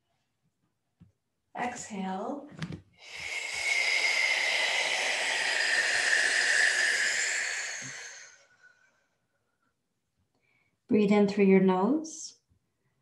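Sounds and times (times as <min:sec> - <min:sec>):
woman exhaling through mouth: 0:03.0 - 0:08.9.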